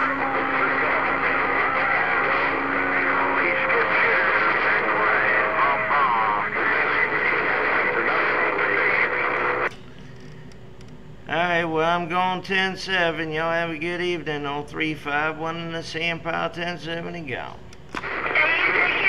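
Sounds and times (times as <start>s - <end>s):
faint radio hiss: 0.0s - 9.7s, 15.4s - 19.0s
garbled radio voices: 0.0s - 9.7s, 18.0s - 19.0s.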